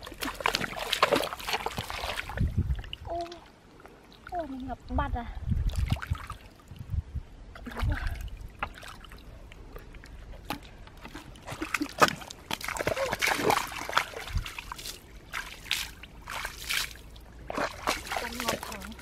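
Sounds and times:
hands squelching in wet mud: 0:00.0 - 0:03.4, 0:11.1 - 0:19.0.

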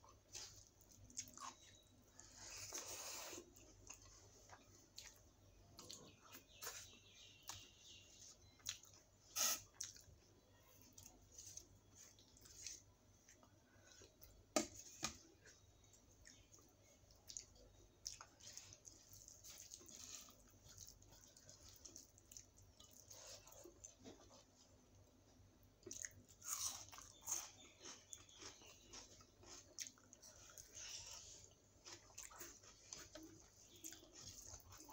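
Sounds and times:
person chewing: 0:00.1 - 0:10.2, 0:25.8 - 0:34.9.

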